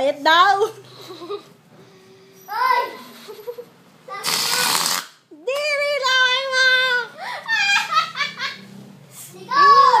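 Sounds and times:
short hiss: 4.2s - 5.2s
girl vocalizing excitedly: 9.4s - 10.0s.

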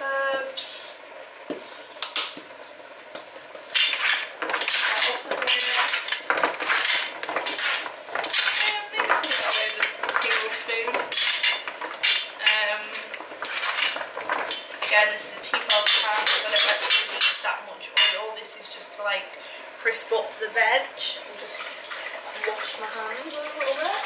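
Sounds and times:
vegetables clattering in metal tin: 3.8s - 17.4s.

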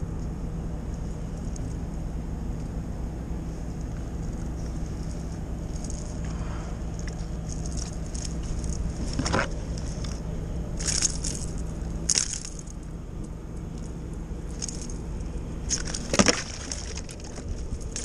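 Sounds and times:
crackling rustles: 0.0s - 18.0s
moving water: 10.8s - 18.0s.

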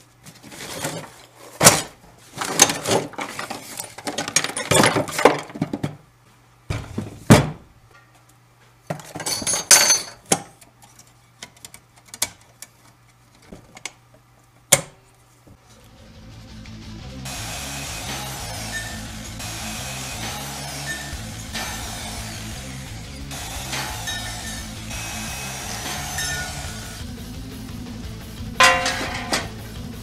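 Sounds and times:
metal tools clinking on workbench: 9.0s - 10.4s, 23.7s - 24.8s, 25.9s - 26.8s, 28.6s - 29.6s.

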